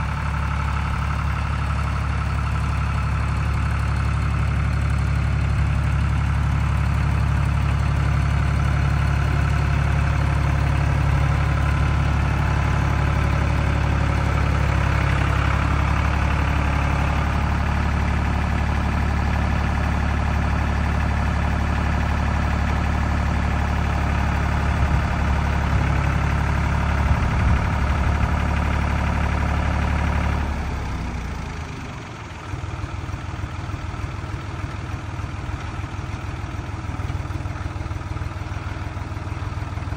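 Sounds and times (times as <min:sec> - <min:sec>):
diesel tractor engine running: 0:00.0 - 0:39.9.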